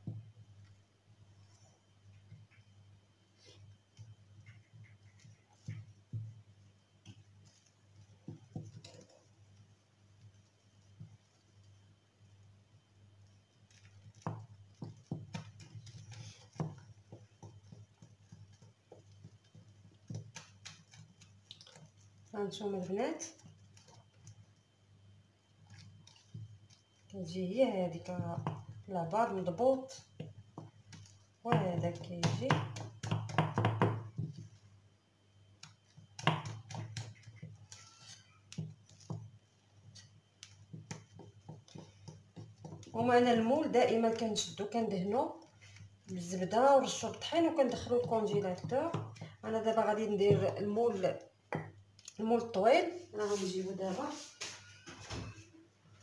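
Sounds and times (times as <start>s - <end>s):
whisk scraping glass bowl: 36.9s - 39.1s.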